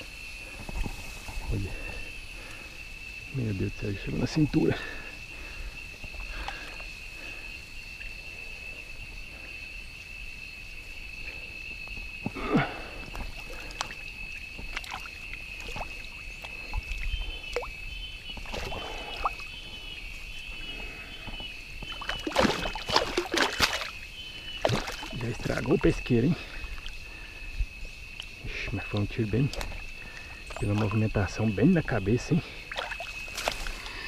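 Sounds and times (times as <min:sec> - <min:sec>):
insects droning: 0:00.0 - 0:34.0
water sloshing and splashing: 0:11.9 - 0:27.3, 0:28.1 - 0:31.4, 0:32.4 - 0:34.0.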